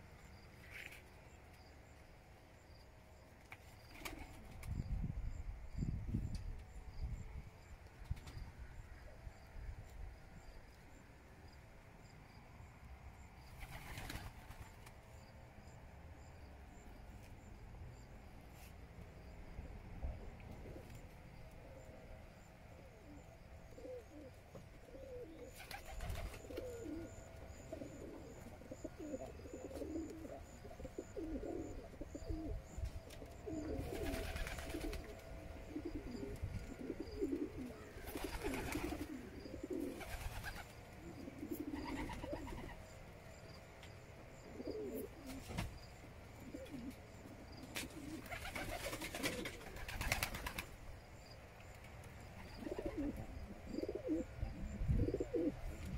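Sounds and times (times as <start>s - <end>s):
pigeons cooing: 22.9s - 42.8s, 44.4s - 45.6s, 46.3s - 50.6s, 52.4s - 55.9s.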